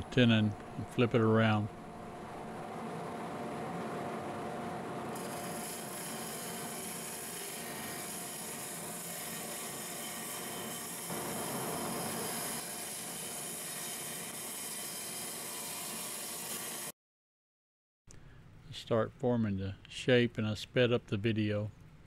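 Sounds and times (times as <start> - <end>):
gouge scraping spinning log: 5.1 - 15.0
wood lathe running: 5.1 - 16.9.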